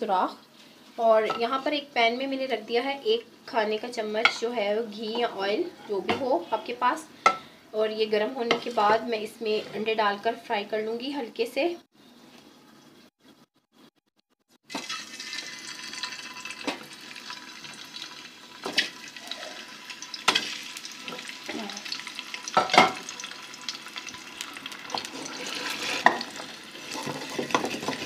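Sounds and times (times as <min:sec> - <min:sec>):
eggs sizzling in a pan: 0:14.6 - 0:28.0.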